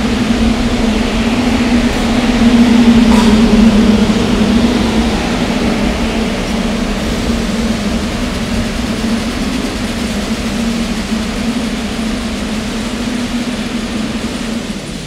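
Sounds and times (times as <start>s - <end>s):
subway train low hum: 0.0s - 15.0s.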